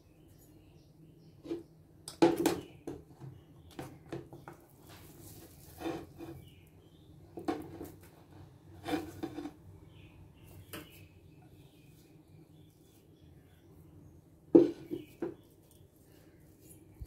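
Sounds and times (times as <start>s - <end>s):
spatula scraping and knocking on pan: 5.3s - 6.4s, 7.4s - 9.6s, 14.5s - 15.4s.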